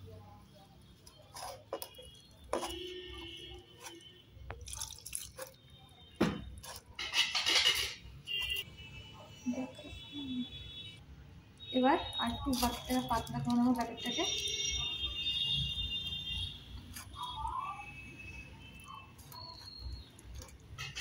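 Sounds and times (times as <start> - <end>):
hand mixing wet batter: 0.8 - 7.3, 12.0 - 21.0.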